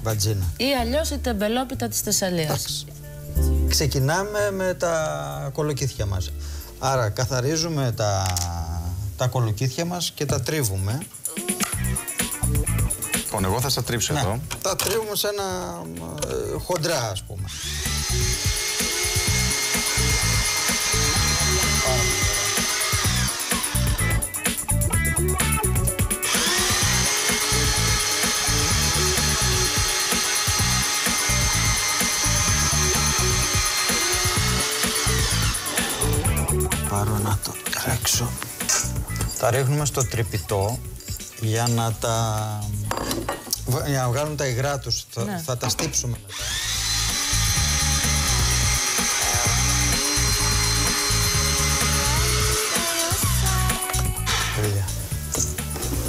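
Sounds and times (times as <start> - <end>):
background music: 0.0 - 56.0
electric grater motor humming: 17.5 - 24.3, 26.2 - 36.8, 46.3 - 54.2.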